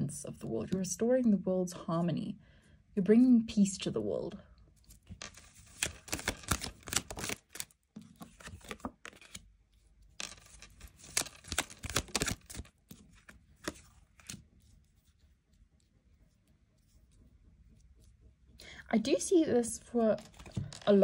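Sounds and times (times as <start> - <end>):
cards being shuffled: 4.8 - 9.5, 10.2 - 15.2, 20.2 - 21.0.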